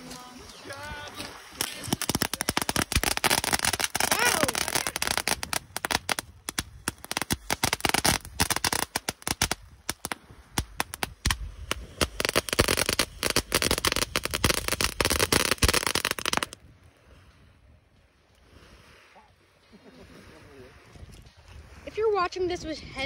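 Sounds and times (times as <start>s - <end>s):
firework hiss: 1.2s - 16.6s
firework crackling pops: 1.6s - 16.6s.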